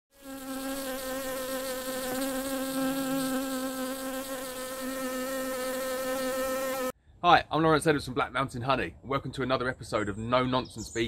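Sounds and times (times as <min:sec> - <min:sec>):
bee buzzing: 0:00.1 - 0:07.0.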